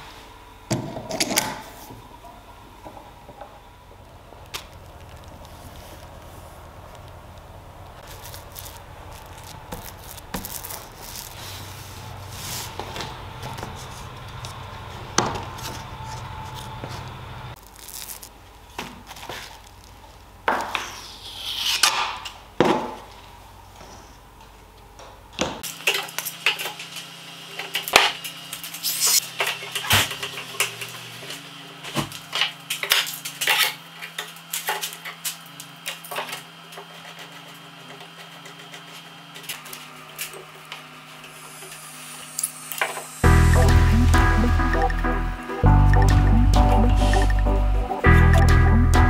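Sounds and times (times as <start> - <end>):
brushing sounds: 8.0 - 13.0.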